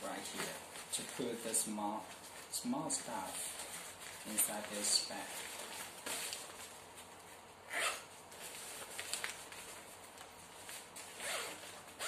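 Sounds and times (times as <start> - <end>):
nylon fabric rustling: 0.0 - 12.0.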